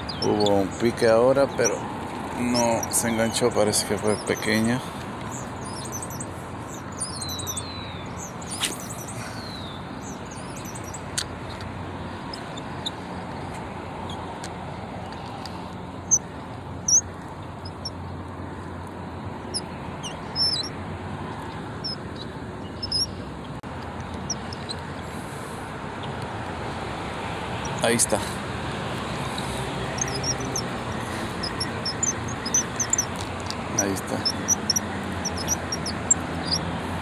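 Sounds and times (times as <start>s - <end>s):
small birds chirping: 0.0s - 37.0s
sharp clicks: 28.9s - 36.7s.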